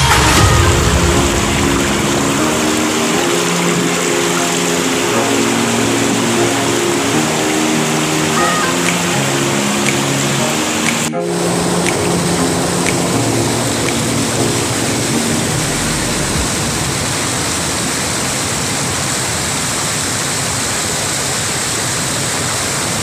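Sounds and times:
waterfall splashing onto rocks: 0.0 - 11.1, 11.7 - 23.0.

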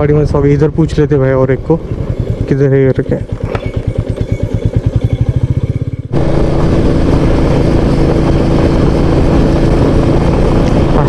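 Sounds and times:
motorcycle engine thumping: 1.9 - 10.9
wind rush: 6.1 - 11.0.

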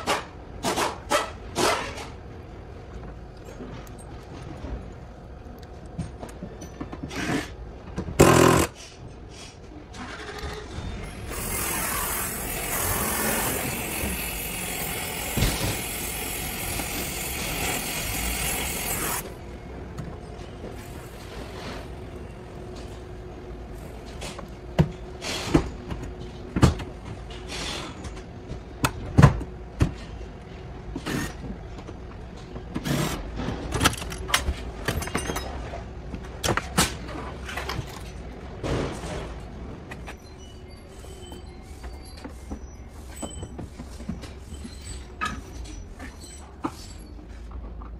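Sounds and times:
gas torch hissing: 11.1 - 19.4.

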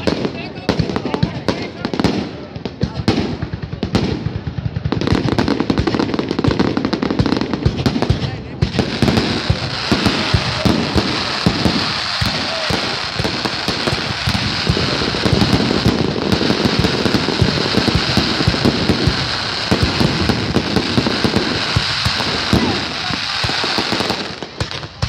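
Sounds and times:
fireworks bangs and crackling: 0.0 - 25.0.

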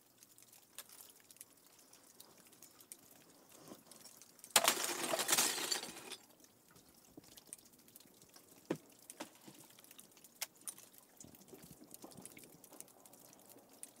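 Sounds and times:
meltwater dripping: 0.0 - 5.1, 6.2 - 14.0
ice clicking and tinkling: 0.3 - 6.5.

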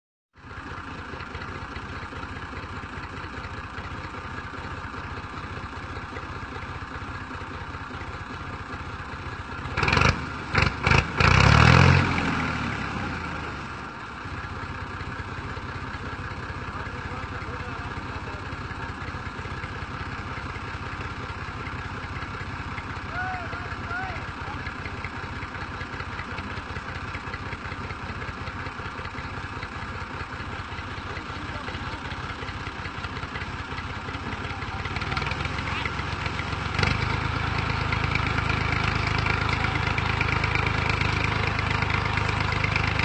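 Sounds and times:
tractor diesel engine running: 0.4 - 43.0
engine revving bursts: 9.7 - 13.2.

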